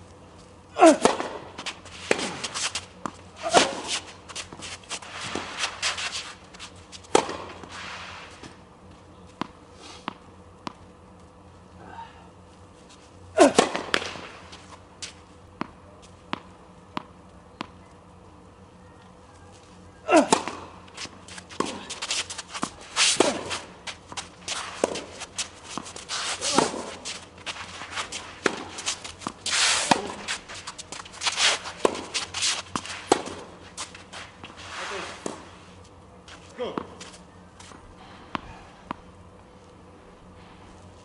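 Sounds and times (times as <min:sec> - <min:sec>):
rackets striking tennis ball: 0:00.8 - 0:07.8, 0:13.4 - 0:17.8, 0:20.1 - 0:35.6.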